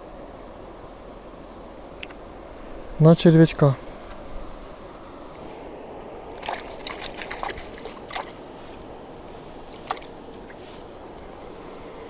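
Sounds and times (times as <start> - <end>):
water splashing and dripping: 6.2 - 11.4.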